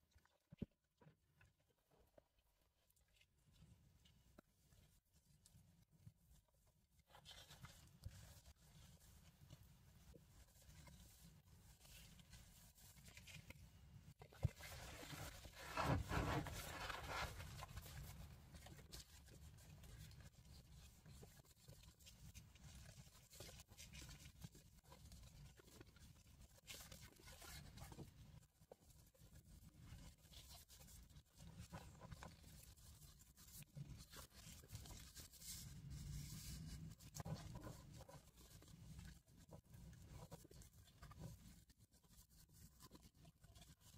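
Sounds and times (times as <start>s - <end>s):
fabric and paper rubbing: 7.0s - 43.9s
pages rustling and turning: 14.4s - 18.0s.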